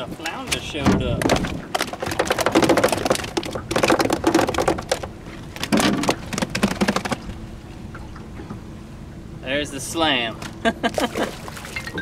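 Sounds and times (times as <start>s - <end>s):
water splashing: 10.9s - 12.0s.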